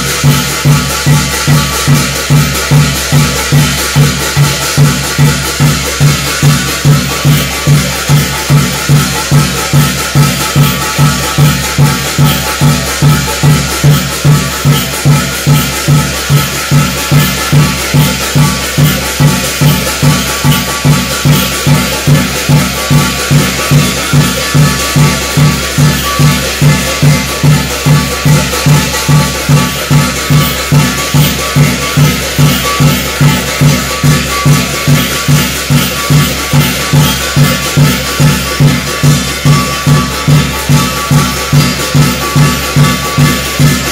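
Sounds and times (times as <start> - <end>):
drum beating fast pulse: 0.0 - 43.9
jingling metal percussion: 0.0 - 43.9.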